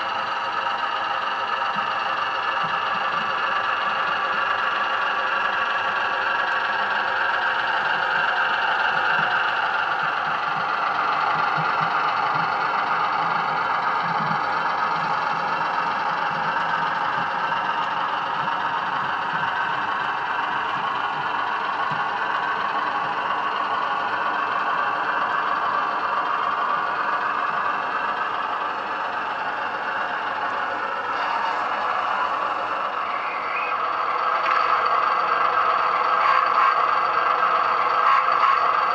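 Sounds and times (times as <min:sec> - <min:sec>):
diesel engine sound effect: 0:00.0 - 0:38.9
model train wheels rattling on track: 0:00.0 - 0:38.9.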